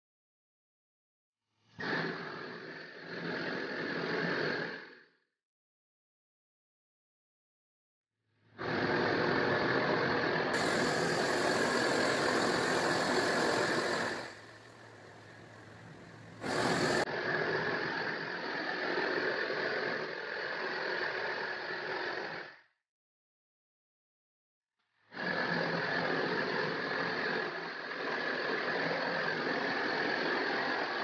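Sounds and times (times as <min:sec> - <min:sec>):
blowtorch flame rushing: 0:01.8 - 0:05.0, 0:08.6 - 0:22.6.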